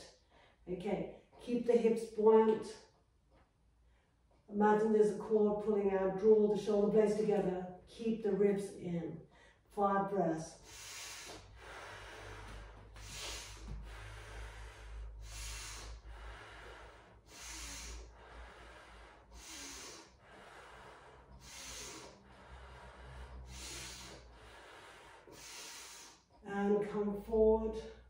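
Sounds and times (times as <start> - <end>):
woman breathing slowly: 0.0 - 1.4, 9.2 - 9.8, 10.5 - 28.0.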